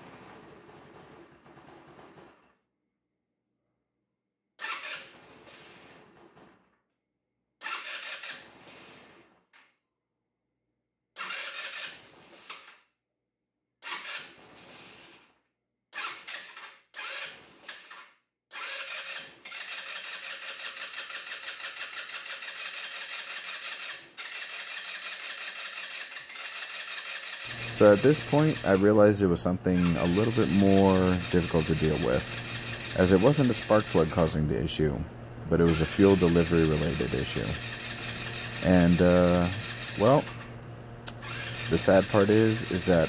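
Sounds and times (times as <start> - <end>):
scooter engine starting and stalling: 4.6 - 5.1, 7.6 - 8.6, 11.2 - 12.7, 13.8 - 14.9, 16.0 - 18.0, 18.6 - 43.0.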